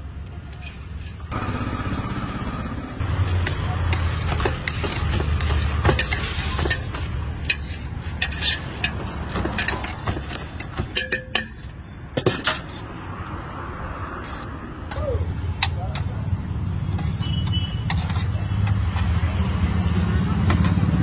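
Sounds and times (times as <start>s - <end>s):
street traffic rumble: 0.0s - 21.0s
utensils clinking on metal bowls: 3.3s - 12.8s, 17.0s - 19.7s.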